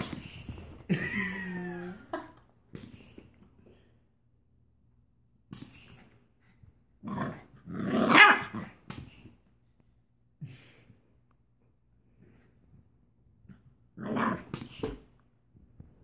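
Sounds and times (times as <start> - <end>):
puppy barking and growling: 7.0 - 8.8, 14.0 - 14.5.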